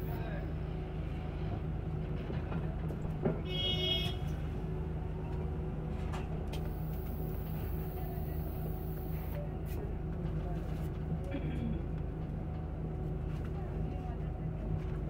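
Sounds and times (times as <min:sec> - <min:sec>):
bus cabin rumble: 0:00.0 - 0:15.0.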